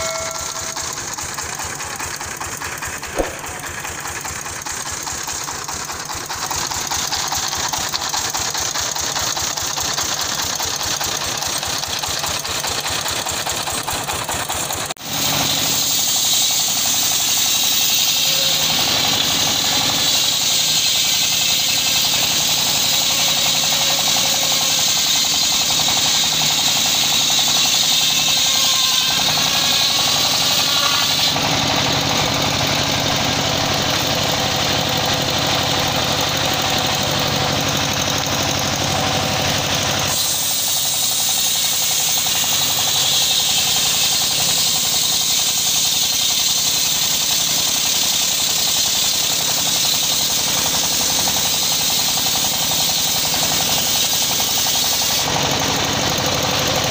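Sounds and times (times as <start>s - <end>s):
saw bench engine running: 0.0s - 56.9s
saw blade ripping through log: 3.1s - 3.6s, 40.1s - 55.3s.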